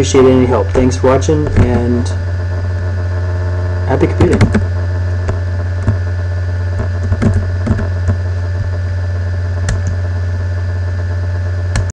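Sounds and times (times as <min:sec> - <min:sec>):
electrical hum with hiss: 0:00.0 - 0:11.9
keyboard and mouse clicks: 0:04.3 - 0:04.7, 0:06.9 - 0:08.2, 0:09.6 - 0:10.0.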